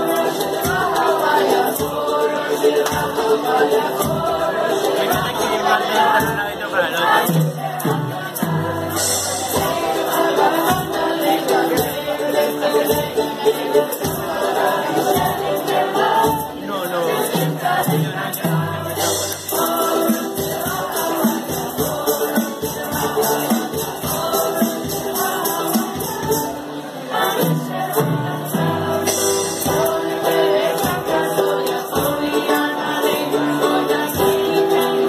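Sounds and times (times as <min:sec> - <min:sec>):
instrumental accompaniment with beat: 0:00.0 - 0:35.0
students singing together: 0:00.0 - 0:35.0.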